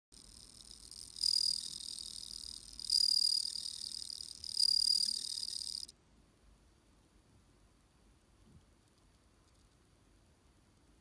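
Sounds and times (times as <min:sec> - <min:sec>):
crickets ringing trill: 0:00.2 - 0:05.9.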